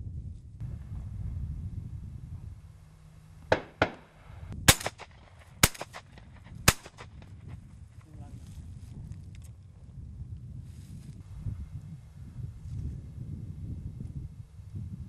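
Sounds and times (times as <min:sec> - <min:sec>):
wind rumbling on microphone: 0:00.0 - 0:15.0
shotgun shots: 0:03.5 - 0:07.4.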